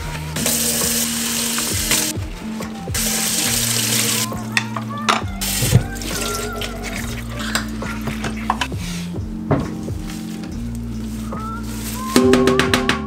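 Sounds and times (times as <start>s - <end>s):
tap water running into sink: 0.3s - 4.4s, 5.4s - 8.7s.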